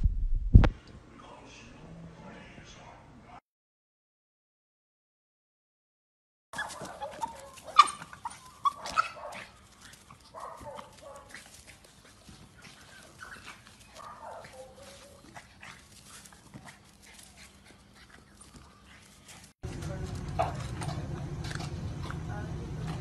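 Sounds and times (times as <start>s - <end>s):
dog whining and yipping: 6.6s - 9.3s
dog barking: 6.6s - 9.6s, 10.3s - 11.4s, 13.9s - 15.3s.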